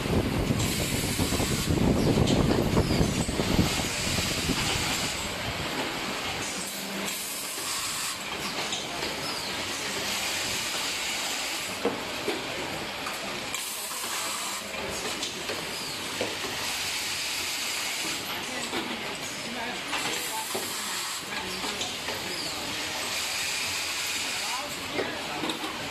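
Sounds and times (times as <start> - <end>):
machine hissing: 0.2 - 11.9, 13.2 - 25.4.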